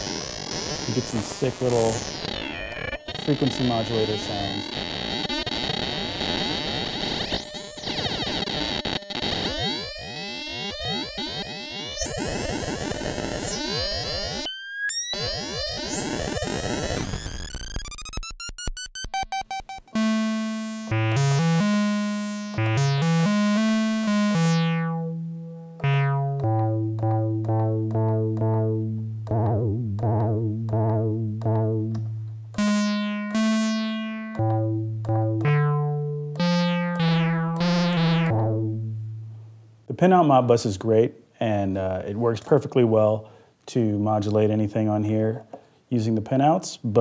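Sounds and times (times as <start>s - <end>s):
synthesizer bass notes: 0.7s - 39.9s
warbling clanging synthesizer tone: 9.2s - 30.9s, 31.6s - 39.5s.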